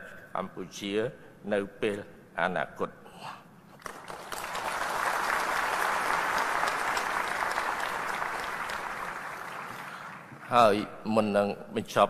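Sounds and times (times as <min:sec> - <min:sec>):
audience applauding: 0:03.8 - 0:10.5.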